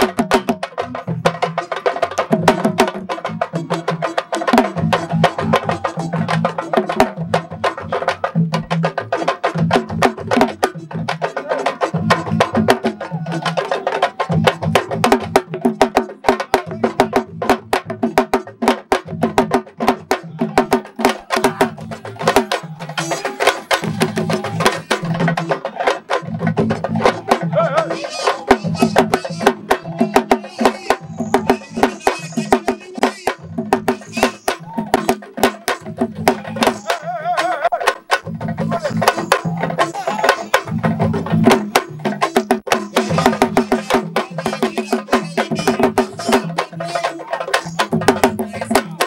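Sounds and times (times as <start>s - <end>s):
fast hand-drum drumming: 0.0s - 49.0s.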